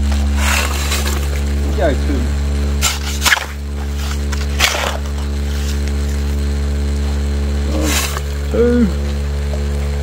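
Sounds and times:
vibrating motor humming: 0.0 - 10.0
shovel scraping into gravel: 0.2 - 1.5, 2.8 - 6.2, 7.7 - 8.3.

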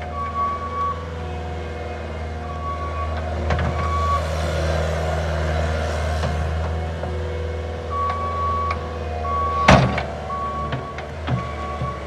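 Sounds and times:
diesel engine running: 0.0 - 12.0
reversing alarm beeping: 0.1 - 1.1, 2.4 - 3.2, 3.8 - 4.3, 7.9 - 12.0.

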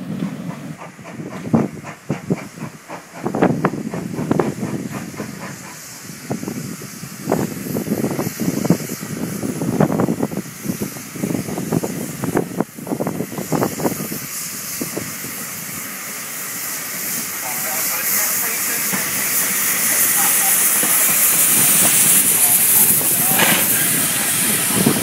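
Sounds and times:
hiss of escaping steam: 0.0 - 25.0
steam locomotive exhaust beats: 0.0 - 25.0.

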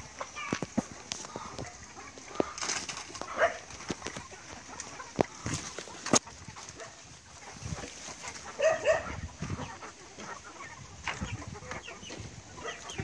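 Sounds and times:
chickens clucking: 0.0 - 13.0
loud chicken calls: 0.0 - 13.0.

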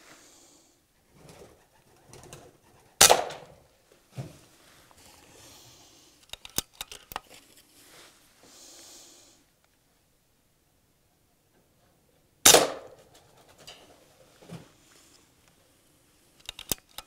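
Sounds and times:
air rifle shot: 3.0 - 3.6, 12.4 - 13.0
sharp clicks: 6.2 - 7.2, 16.4 - 17.0.

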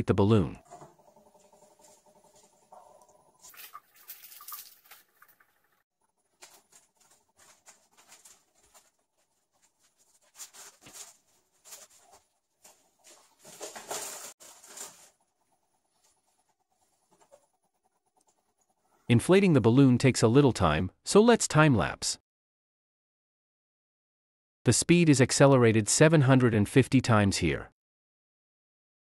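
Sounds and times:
foil balloon crinkling: 0.8 - 16.2.

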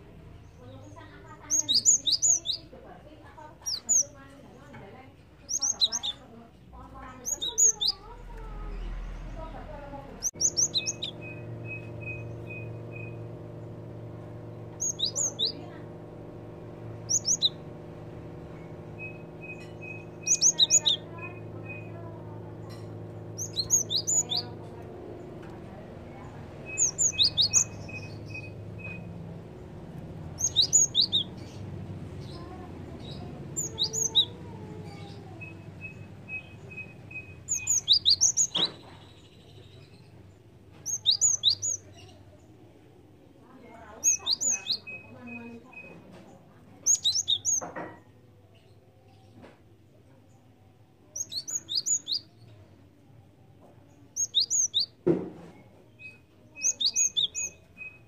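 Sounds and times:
thin ticking bird notes: 0.4 - 2.8, 3.4 - 6.2, 7.0 - 40.1, 40.8 - 42.4, 43.5 - 47.7, 51.1 - 52.6, 54.1 - 55.0, 56.1 - 58.0
bird singing sharp high phrases: 0.4 - 4.2, 5.4 - 6.4, 7.0 - 40.2, 40.8 - 42.3, 43.5 - 46.1, 46.8 - 47.7, 51.0 - 52.7, 53.9 - 58.0
steady low hum: 5.3 - 47.6.

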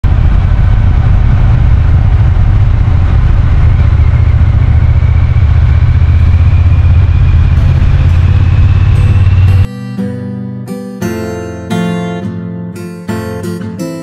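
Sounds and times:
faint high whine: 0.0 - 9.7
motorcycle exhaust drone: 0.0 - 9.7.

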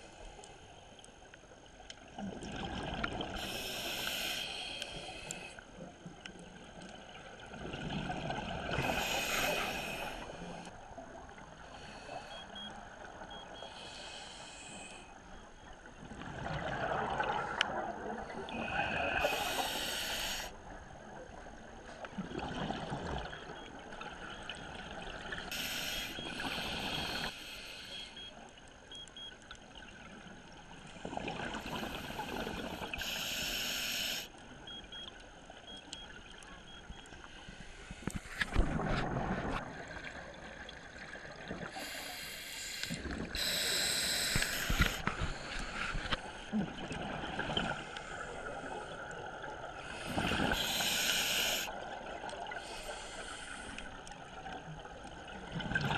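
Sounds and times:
quiet underwater bubbling: 0.0 - 55.9
diver breathing through regulator: 3.4 - 5.6, 8.8 - 10.7, 13.6 - 15.2, 18.5 - 20.5, 25.5 - 28.3, 31.6 - 34.3, 41.7 - 46.6, 49.8 - 51.8, 52.6 - 54.0
exhaled bubbles: 16.1 - 19.4.

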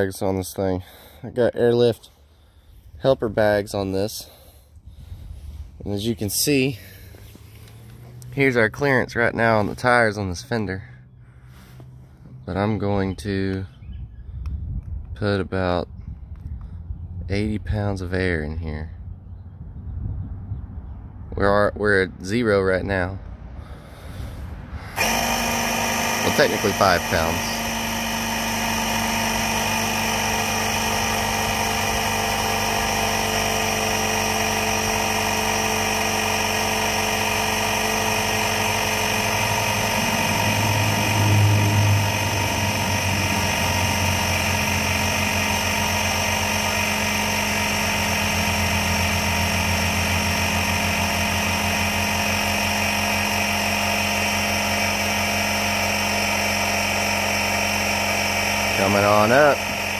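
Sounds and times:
air compressor running: 0.0 - 12.6, 23.6 - 59.9
low hum: 23.2 - 53.5.

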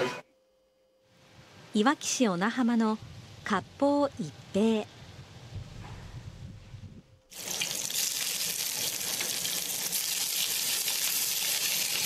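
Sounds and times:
fish sizzling in hot oil: 7.3 - 12.0.

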